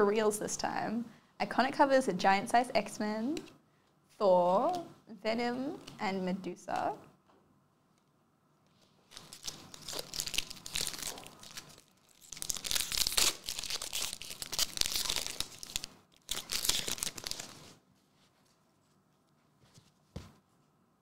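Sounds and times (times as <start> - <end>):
foil wrappers crinkling: 9.1 - 17.8.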